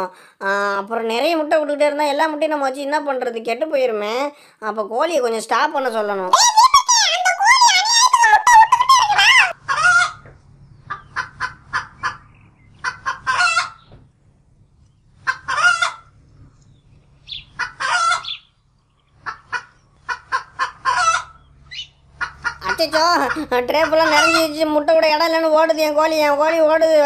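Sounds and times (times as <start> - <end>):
low steady hum: 0.1 - 27.0
toy hen clucking: 6.3 - 10.2, 10.9 - 12.2, 12.8 - 13.8, 15.2 - 16.1, 17.3 - 18.5, 19.2 - 24.6.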